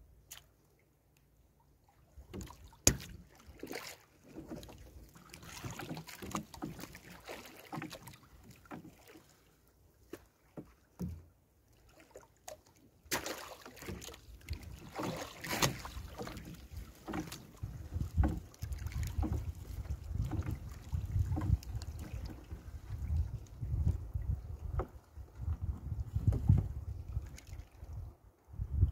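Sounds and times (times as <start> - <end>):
net splashing and dripping: 2.3 - 9.3, 11.8 - 17.4
knocks against boat hull: 2.4 - 3.2
wind rumble on microphone: 17.6 - 28.9.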